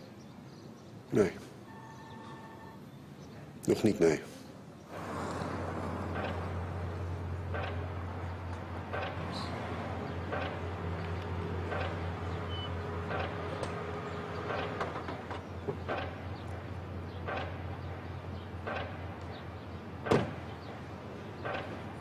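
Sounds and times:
car engine running: 0:04.9 - 0:20.6
car door shutting: 0:20.0 - 0:20.5.

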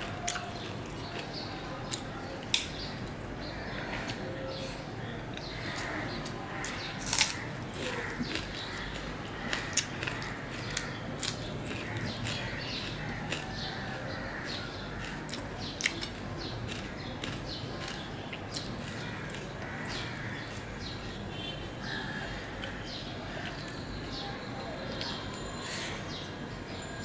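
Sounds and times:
person chewing and lip smacking: 0:00.0 - 0:03.2, 0:04.0 - 0:14.0, 0:15.0 - 0:19.7.

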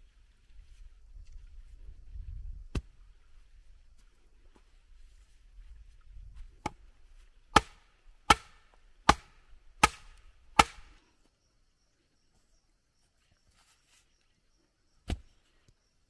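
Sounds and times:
wooden club pounding stake: 0:07.5 - 0:10.9.

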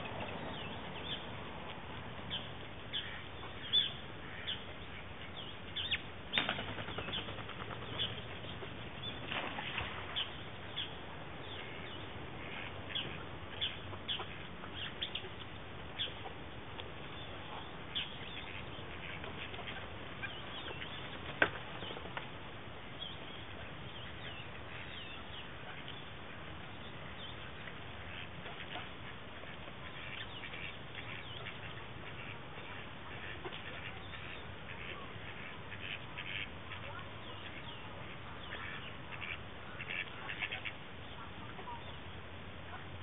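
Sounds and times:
steady background hiss: 0:00.0 - 0:43.0
ducks pecking clicks and rustles: 0:06.3 - 0:10.3, 0:11.6 - 0:22.8, 0:23.4 - 0:42.0.

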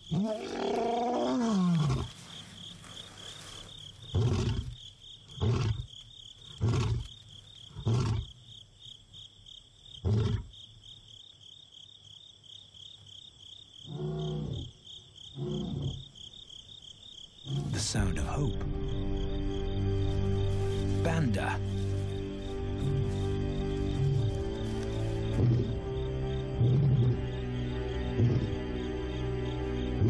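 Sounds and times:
insects chirping: 0:00.0 - 0:30.0
lion roaring and grunting: 0:00.1 - 0:02.2, 0:04.1 - 0:05.9, 0:07.7 - 0:08.3, 0:15.4 - 0:16.1, 0:26.5 - 0:27.3, 0:28.0 - 0:28.7.

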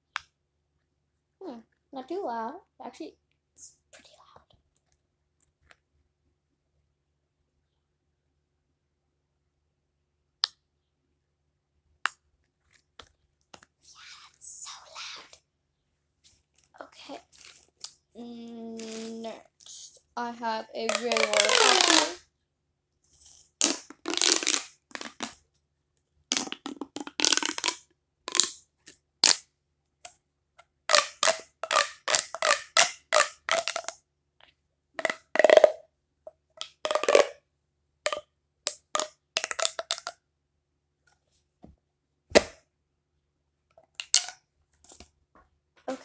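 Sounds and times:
plastic pop tube popping: 0:10.4 - 0:10.6, 0:20.8 - 0:22.2, 0:23.6 - 0:25.4, 0:26.3 - 0:34.0, 0:35.0 - 0:37.4, 0:38.1 - 0:40.2, 0:42.3 - 0:42.7, 0:43.9 - 0:45.1.

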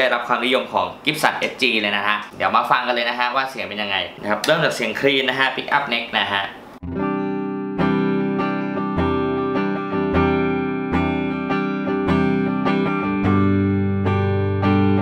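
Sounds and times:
clean electric guitar chords: 0:06.8 - 0:15.0.

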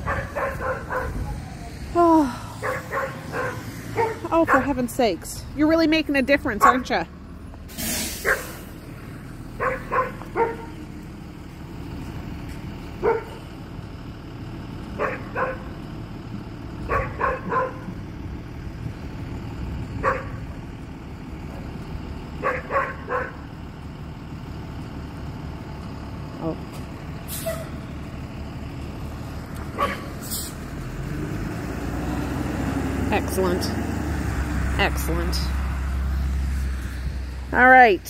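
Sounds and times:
dog barking: 0:00.0 - 0:01.2, 0:02.6 - 0:04.8, 0:06.6 - 0:06.9, 0:09.6 - 0:10.8, 0:13.0 - 0:13.4, 0:15.0 - 0:15.7, 0:16.9 - 0:17.9, 0:20.0 - 0:20.4, 0:22.4 - 0:23.4, 0:29.8 - 0:30.1
bus idling: 0:00.0 - 0:38.0.

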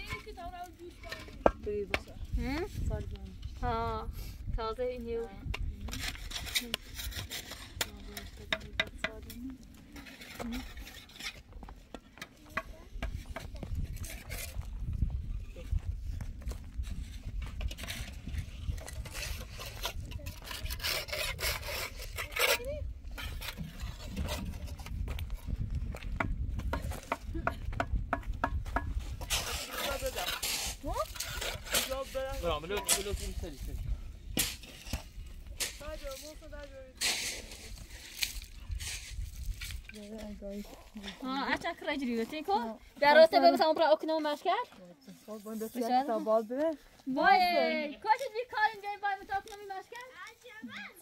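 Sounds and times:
blocks scraping on mortar: 0:05.6 - 0:15.0, 0:16.4 - 0:25.6, 0:28.1 - 0:40.3.

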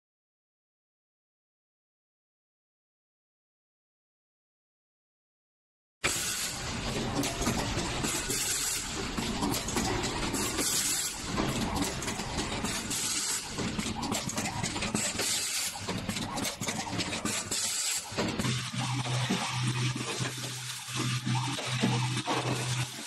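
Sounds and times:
machine hissing and clicking: 0:06.0 - 0:23.0.

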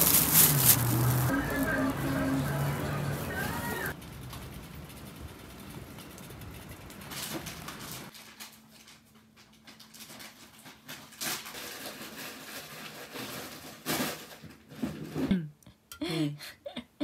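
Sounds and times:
person speaking: 0:00.0 - 0:04.0.

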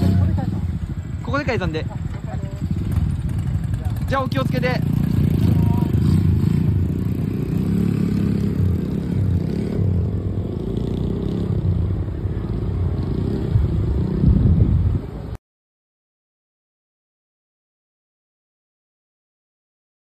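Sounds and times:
minibike engines running: 0:00.0 - 0:14.2.

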